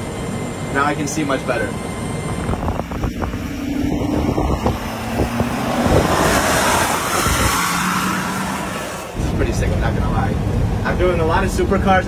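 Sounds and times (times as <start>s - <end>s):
vehicle engine driving by: 1.5s - 11.8s
tyre and road noise: 1.6s - 12.0s.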